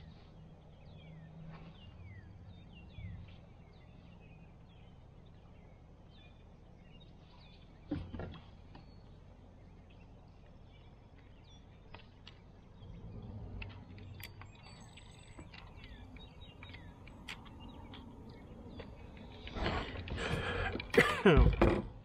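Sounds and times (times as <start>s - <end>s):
bird chirps: 0.0s - 21.0s
small clicks: 13.5s - 21.0s.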